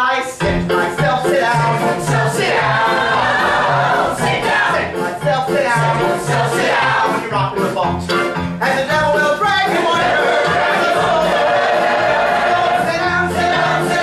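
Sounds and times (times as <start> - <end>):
ensemble singing show tune: 0.0 - 14.0
band playing: 0.4 - 14.0
bouncing bass line: 0.4 - 14.0
steady drum beat: 8.6 - 14.0.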